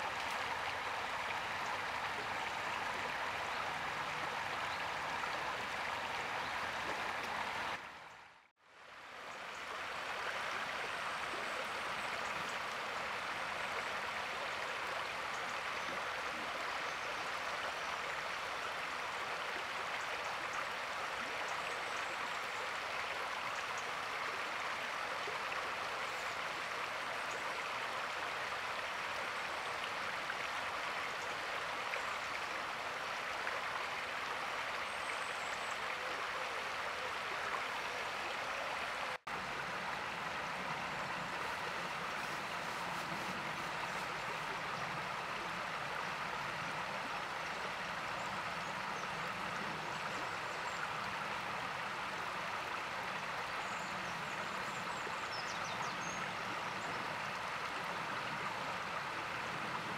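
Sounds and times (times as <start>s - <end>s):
river running over stones: 0.0s - 59.9s.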